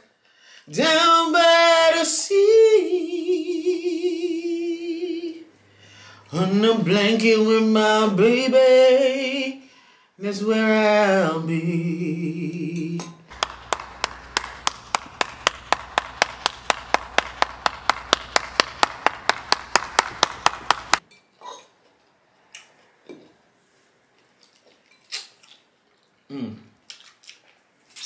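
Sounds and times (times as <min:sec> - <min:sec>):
faint steady hum: 0:02.3 - 0:10.2, 0:11.7 - 0:21.0
fast even run of clicks: 0:13.3 - 0:21.0.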